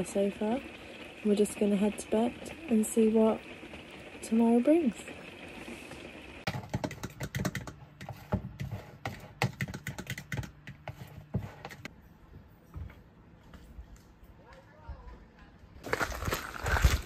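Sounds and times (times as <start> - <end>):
rain hissing on a camper roof: 0.0 - 7.0.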